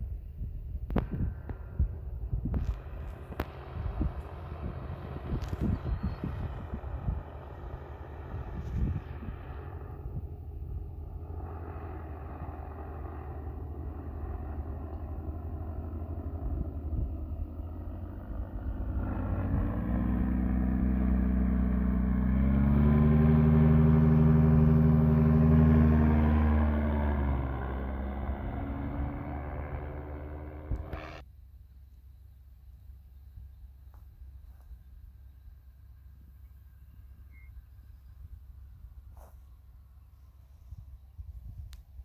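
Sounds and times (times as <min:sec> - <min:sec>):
wind rumble on microphone: 0:00.0 - 0:31.2, 0:37.2 - 0:42.0
paramotor engine droning: 0:00.0 - 0:42.0.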